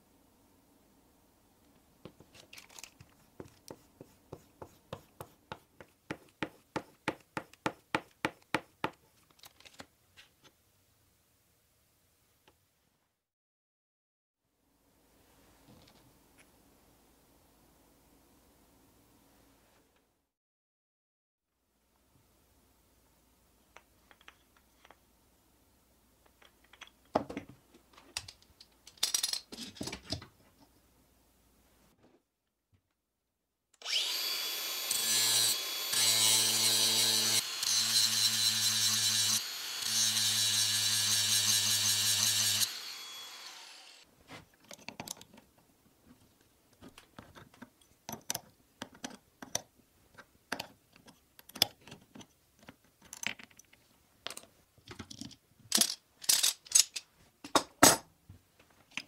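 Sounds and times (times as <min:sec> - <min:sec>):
angle grinder grinding metal: 0:33.8 - 0:44.0.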